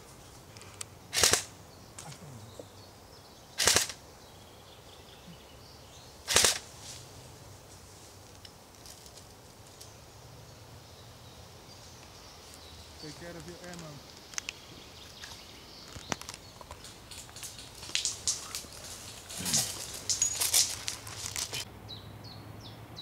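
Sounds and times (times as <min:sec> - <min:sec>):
airsoft gun bursts: 0:01.1 - 0:01.5, 0:03.6 - 0:04.0, 0:06.3 - 0:06.6.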